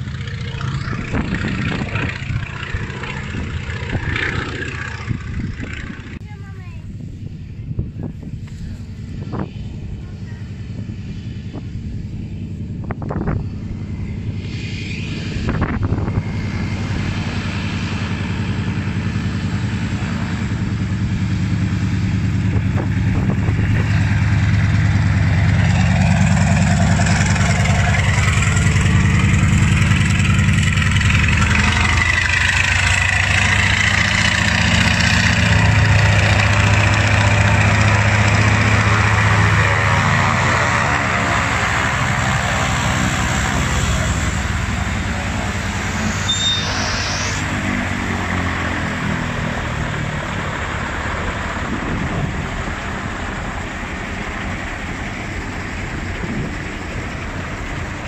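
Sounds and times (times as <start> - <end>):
propeller plane engine running: 0.0 - 58.0.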